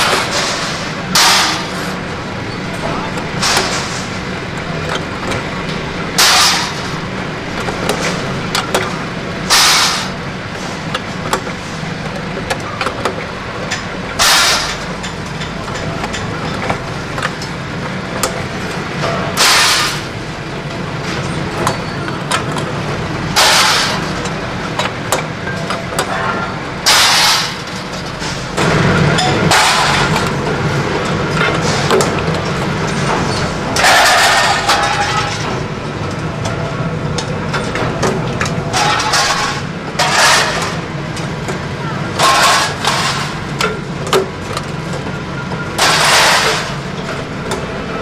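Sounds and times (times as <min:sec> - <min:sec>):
press shearing sheet metal: 0:00.0 - 0:20.3, 0:21.0 - 0:35.6, 0:37.5 - 0:41.3, 0:42.1 - 0:44.1, 0:45.8 - 0:47.6
power press running: 0:00.0 - 0:48.0.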